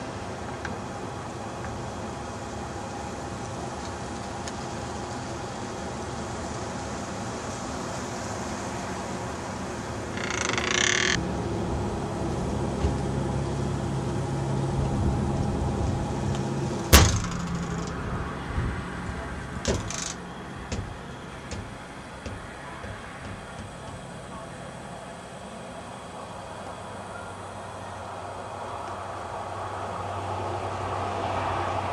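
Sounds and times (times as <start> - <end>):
steady outdoor hiss: 0.0 - 31.9
vehicle passing with low hum: 0.0 - 31.9
sharp loud knock: 16.9 - 18.0, 19.1 - 24.1.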